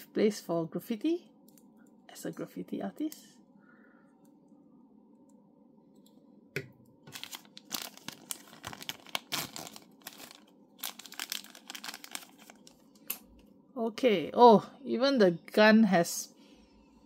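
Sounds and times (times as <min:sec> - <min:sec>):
plastic packaging crinkling and tearing: 0:07.0 - 0:13.2.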